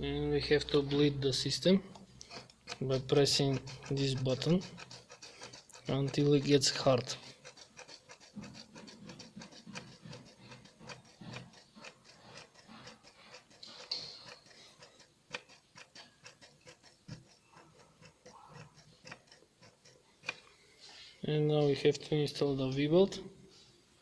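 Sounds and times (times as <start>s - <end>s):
hand primer pump clicking: 1.9s - 20.5s.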